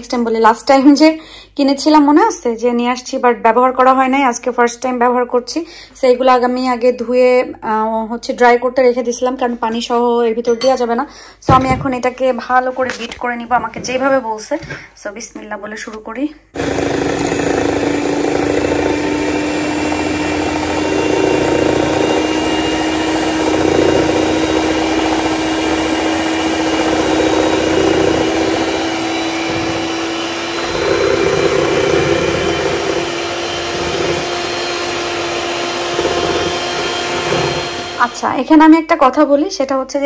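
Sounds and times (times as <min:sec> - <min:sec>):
electric hand mixer whisking: 0:16.6 - 0:38.6.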